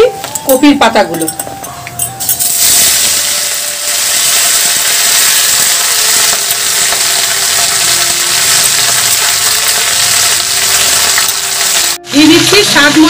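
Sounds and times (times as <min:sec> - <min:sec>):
leaves sizzling in hot oil: 0:02.4 - 0:13.0.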